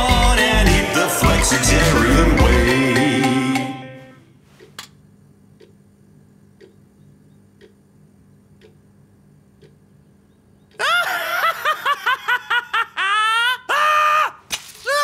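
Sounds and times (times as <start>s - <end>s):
song final chord: 0.0s - 4.3s
wall clock ticking: 5.6s - 5.8s, 6.6s - 6.9s, 7.6s - 7.8s, 8.6s - 8.8s, 9.5s - 9.8s.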